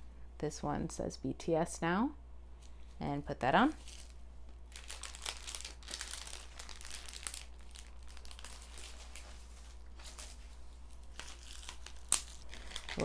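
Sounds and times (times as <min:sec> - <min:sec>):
bubble wrap crinkling: 0:03.7 - 0:13.0.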